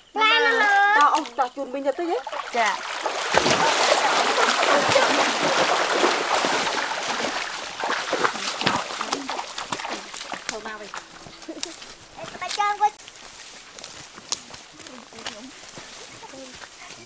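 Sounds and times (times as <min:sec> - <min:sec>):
child's voice: 0:00.1 - 0:01.5, 0:12.2 - 0:13.0, 0:16.1 - 0:17.0
water splashing from wading: 0:01.0 - 0:16.3.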